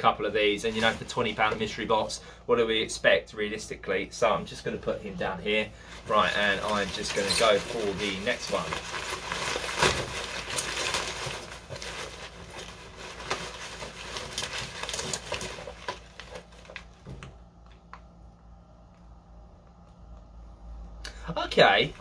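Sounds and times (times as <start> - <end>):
bubble wrap crackling and rustling: 0.0 - 2.1, 5.5 - 18.2.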